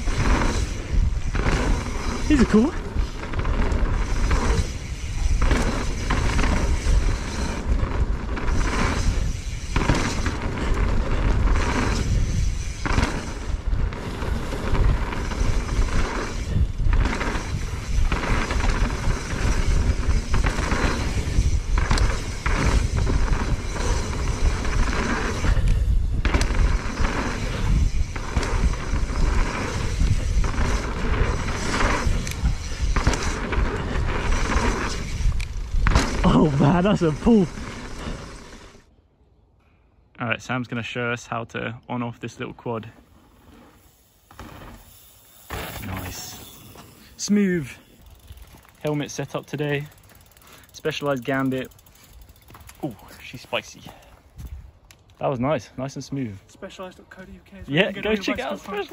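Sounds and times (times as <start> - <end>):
wind buffeting microphone: 0.0 - 38.5
bike rattling over bumps: 0.0 - 38.9, 43.0 - 54.6, 56.8 - 58.9
tyres on dirt: 0.0 - 38.9, 42.3 - 58.9.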